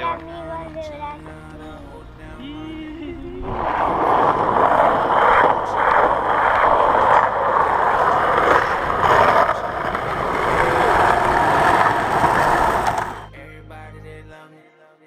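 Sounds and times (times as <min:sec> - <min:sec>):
skateboard wheels rolling on asphalt: 0:02.7 - 0:13.3.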